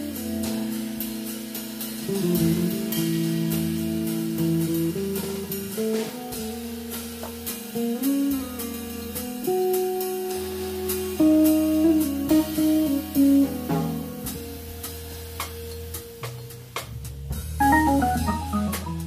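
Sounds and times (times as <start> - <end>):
drum kit cymbal strokes: 0.0 - 19.0
electric guitar chords: 17.6 - 19.0.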